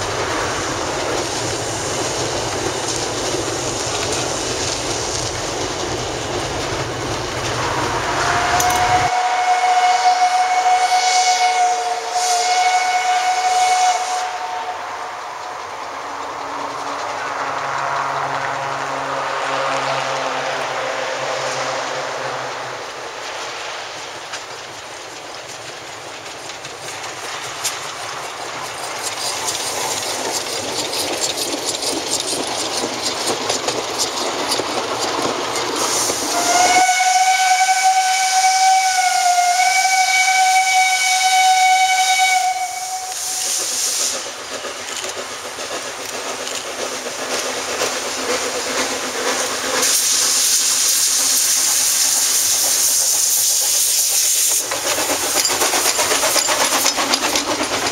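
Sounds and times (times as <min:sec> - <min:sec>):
loud hiss of steam: 0:00.0 - 0:18.0, 0:18.6 - 0:57.9
steam locomotive running: 0:00.0 - 0:57.9
steam whistle blast: 0:08.1 - 0:15.2, 0:35.9 - 0:43.8.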